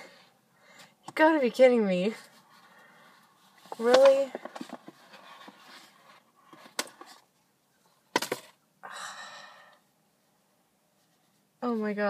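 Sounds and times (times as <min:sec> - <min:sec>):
faint rustling of package: 0:02.2 - 0:08.6.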